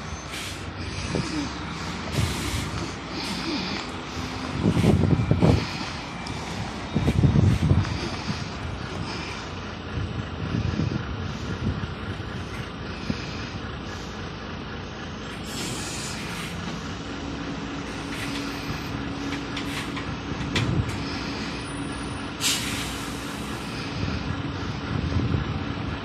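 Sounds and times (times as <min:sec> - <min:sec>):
diesel engine running: 0:00.0 - 0:26.0
compressed air hiss: 0:22.4 - 0:23.7.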